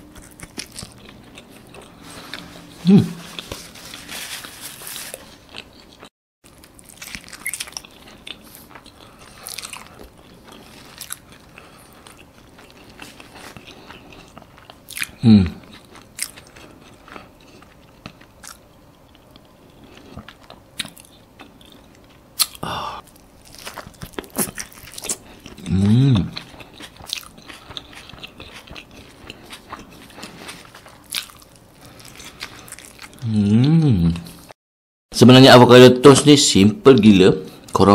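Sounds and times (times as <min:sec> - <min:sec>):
toasted bread crunching: 0:00.0 - 0:02.4, 0:03.2 - 0:15.1, 0:23.0 - 0:25.7
person humming: 0:02.8 - 0:03.4, 0:15.2 - 0:15.6, 0:22.6 - 0:23.0, 0:25.6 - 0:26.4, 0:33.2 - 0:34.3
wet chewing mouth sounds: 0:19.7 - 0:33.2.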